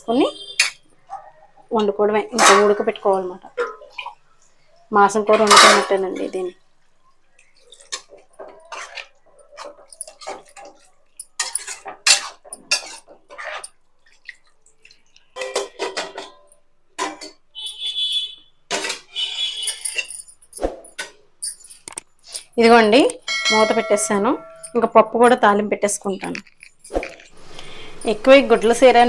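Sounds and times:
steel spoon scraping a pan: 0:07.7 - 0:13.8, 0:18.7 - 0:20.1.

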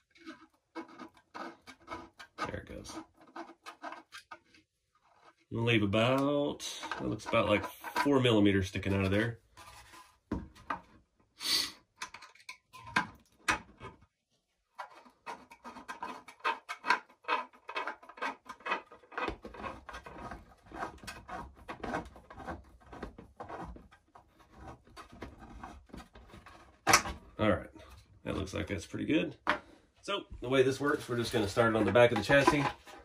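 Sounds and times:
metal rubbing on plastic: 0:00.0 - 0:11.0, 0:14.6 - 0:29.5, 0:30.4 - 0:33.0.

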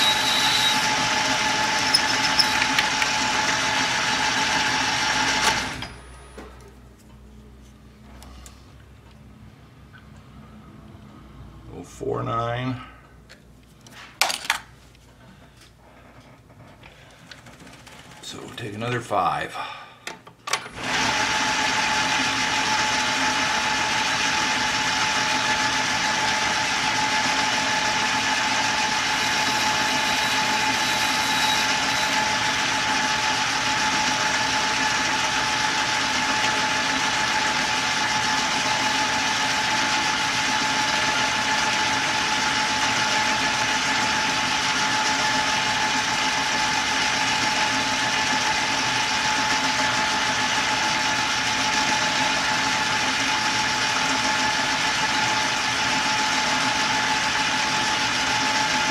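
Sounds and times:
metal lathe whining: 0:00.0 - 0:06.0, 0:20.8 - 0:58.9.

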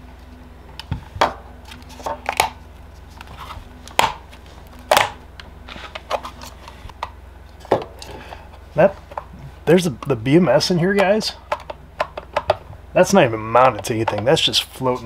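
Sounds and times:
plastic battery case knocks and clicks: 0:11.5 - 0:12.6.

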